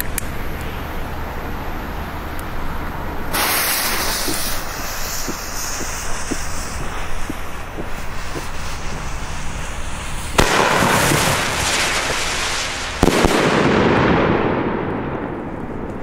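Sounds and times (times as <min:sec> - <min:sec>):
hissing and crackling: 0:02.1 - 0:13.8
firework fuse fizzing: 0:03.2 - 0:14.1
firework bangs: 0:03.2 - 0:16.0.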